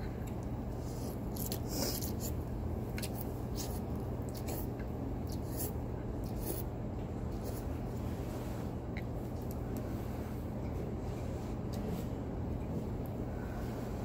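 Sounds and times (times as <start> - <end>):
steady low hum: 0.0 - 14.0
eating sounds: 0.2 - 6.7.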